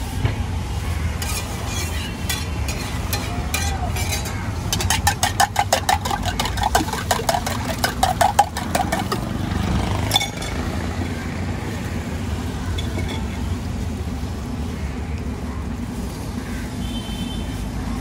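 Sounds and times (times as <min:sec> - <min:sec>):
low traffic rumble: 0:00.0 - 0:18.0
metal spatula clinking in tumbler: 0:01.2 - 0:09.4.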